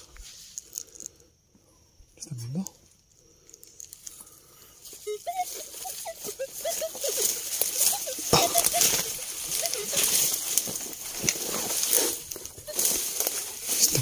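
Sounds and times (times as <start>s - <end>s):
short chirping tones: 4.6s - 10.4s
trampling through tall grass: 4.8s - 14.0s.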